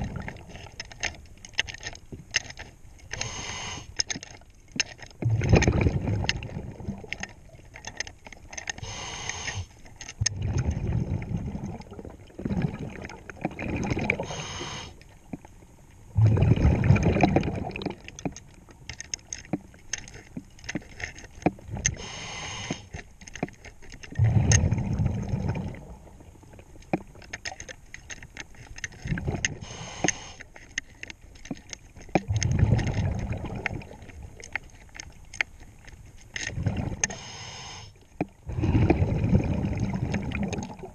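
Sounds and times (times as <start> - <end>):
exhaled bubbles rushing: 0.0 - 0.5, 5.2 - 7.2, 10.2 - 14.4, 16.2 - 18.1, 24.2 - 26.2, 29.1 - 29.6, 32.3 - 34.4, 36.5 - 37.1, 38.5 - 40.9
regulator inhalation hiss: 3.2 - 3.9, 8.8 - 9.8, 14.3 - 15.0, 22.0 - 22.9, 29.6 - 30.4, 37.1 - 37.9.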